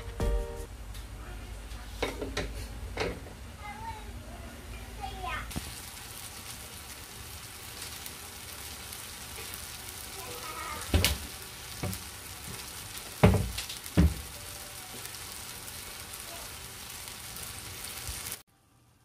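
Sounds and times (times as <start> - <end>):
stir-fry sizzling in a frying pan: 4.6 - 19.0.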